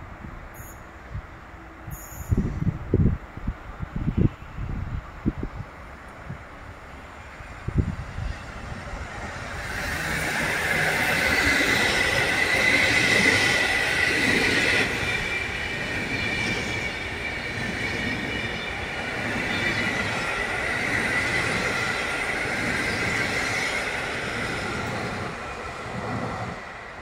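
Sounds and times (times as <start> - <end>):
train rumbling over rails: 0.0 - 27.0
high-pitched squeal: 8.2 - 25.8.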